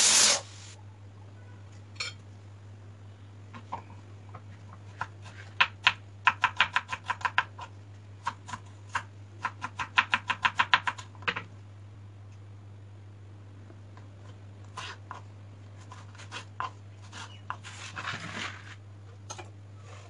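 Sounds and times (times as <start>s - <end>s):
steady low hum: 10.9s - 17.7s.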